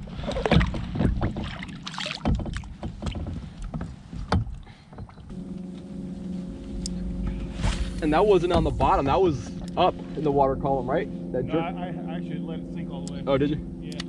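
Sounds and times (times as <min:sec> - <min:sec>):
water splashing: 0:00.0 - 0:05.3
knocks against plastic kayak: 0:02.2 - 0:05.1
steady low hum: 0:05.2 - 0:14.0.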